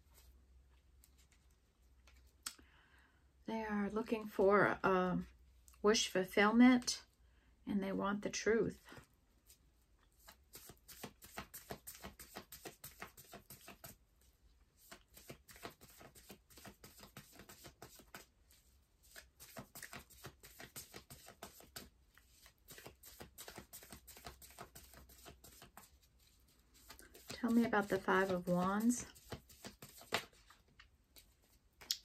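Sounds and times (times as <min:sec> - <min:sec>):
cards being shuffled: 0:10.1 - 0:14.0, 0:14.8 - 0:32.0.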